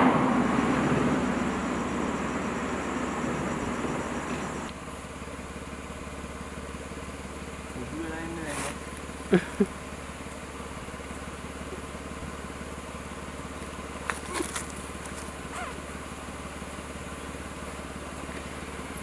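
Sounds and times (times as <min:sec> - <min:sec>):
vehicle engine idling: 0:00.0 - 0:19.0.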